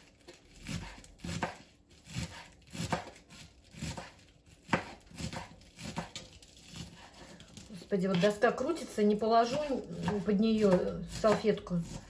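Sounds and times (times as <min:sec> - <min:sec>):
knife chopping cabbage on board: 0:00.2 - 0:07.2, 0:09.4 - 0:12.0.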